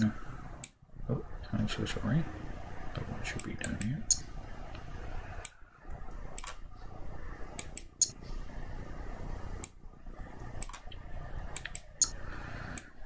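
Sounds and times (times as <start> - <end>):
low room hum: 0.0 - 13.0
computer mouse clicking: 3.3 - 4.2, 5.4 - 6.6, 7.6 - 8.2, 9.6 - 9.8, 10.4 - 13.0.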